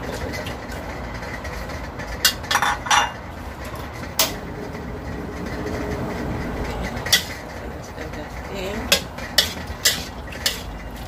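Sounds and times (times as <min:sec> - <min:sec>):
cookware knocking and clattering: 0:02.2 - 0:03.2.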